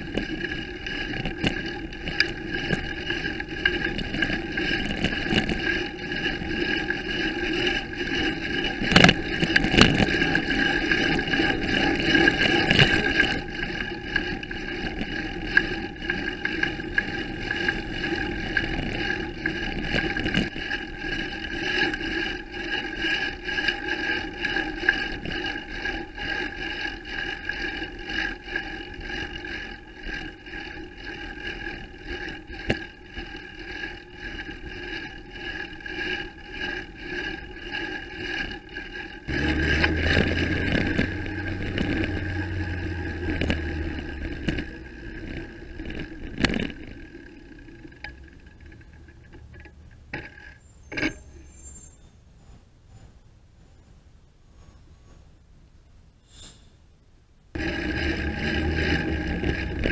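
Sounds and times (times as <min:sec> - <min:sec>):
road and wind rumble: 0:00.0 - 0:22.0, 0:39.3 - 0:51.6, 0:57.6 - 0:59.9.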